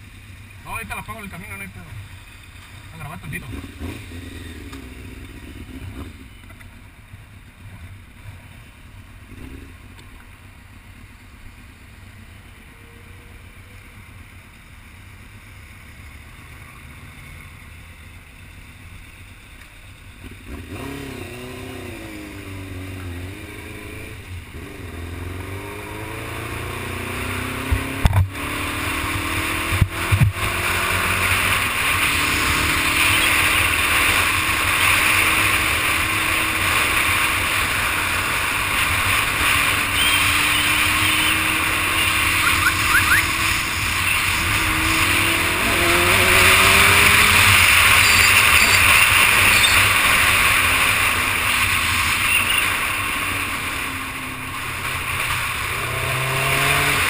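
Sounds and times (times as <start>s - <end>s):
motorcycle engine idling and revving: 0.0s - 57.0s.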